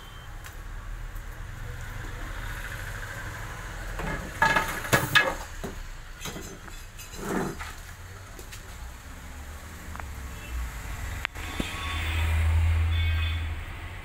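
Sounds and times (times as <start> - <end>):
loud knocks and clatters: 4.0 - 7.5.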